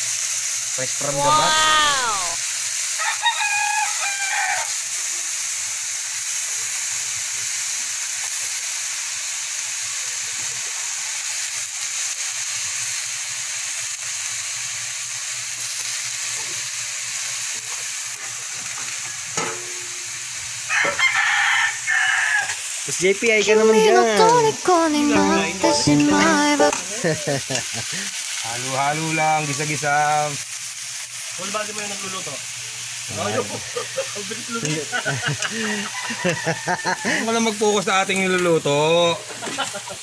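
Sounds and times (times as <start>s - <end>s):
beans sizzling in oil: 0.0s - 40.0s
rooster crowing: 1.1s - 2.4s, 3.0s - 4.7s, 20.7s - 22.6s, 35.6s - 37.3s.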